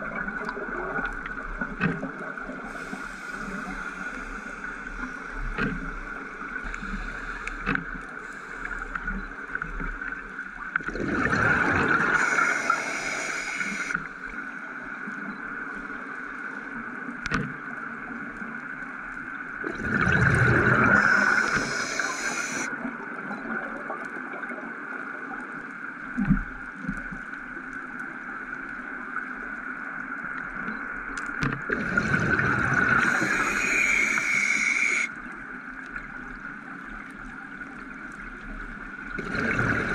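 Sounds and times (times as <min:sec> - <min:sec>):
diver breathing through regulator: 0:02.7 - 0:05.4, 0:12.0 - 0:14.0, 0:20.8 - 0:22.7, 0:32.7 - 0:35.1
steady high hum: 0:12.0 - 0:14.0, 0:20.8 - 0:22.7.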